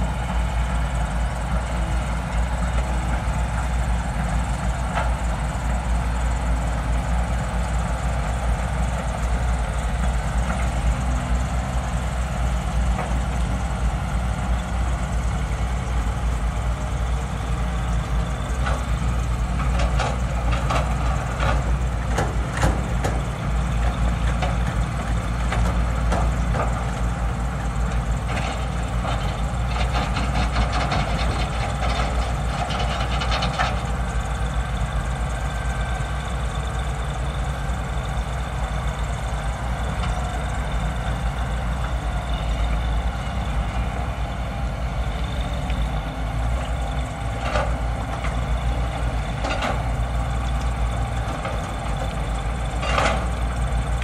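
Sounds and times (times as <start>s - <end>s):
diesel excavator engines running: 0.0s - 54.0s.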